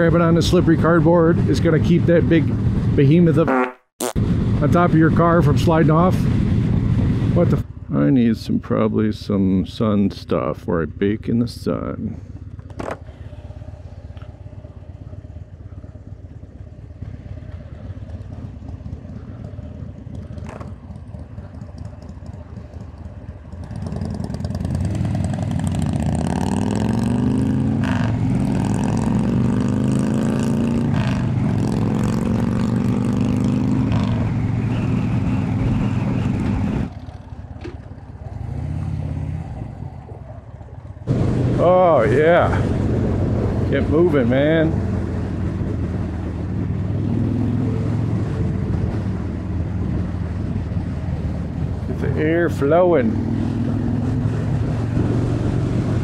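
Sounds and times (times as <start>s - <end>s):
motorcycle engine accelerating: 12.2s - 56.0s.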